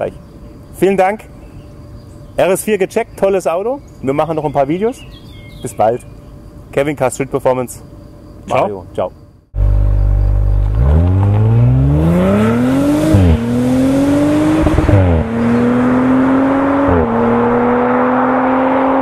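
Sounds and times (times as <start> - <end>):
car engine accelerating through gears: 9.6 - 19.0.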